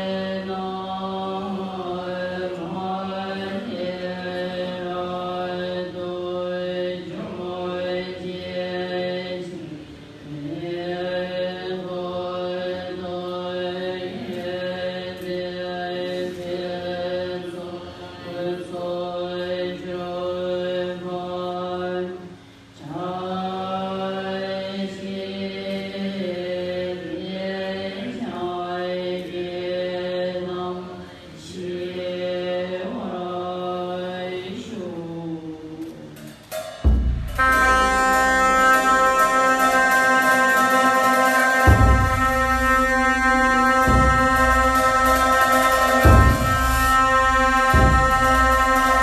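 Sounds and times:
monks chanting in unison: 0:00.0 - 0:49.0
ritual instruments sustained tones: 0:36.1 - 0:49.0
deep drum beat: 0:36.6 - 0:38.4, 0:41.6 - 0:49.0.

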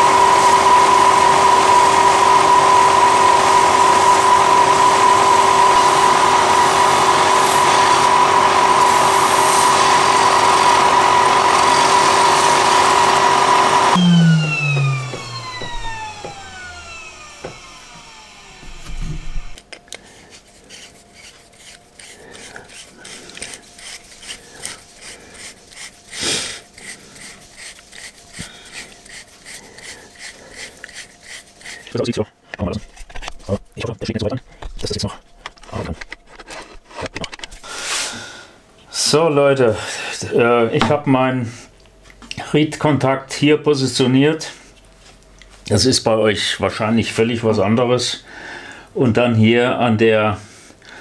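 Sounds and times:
belt sander humming: 0:00.0 - 0:19.6
sander coasting to a stop: 0:00.0 - 0:19.6.

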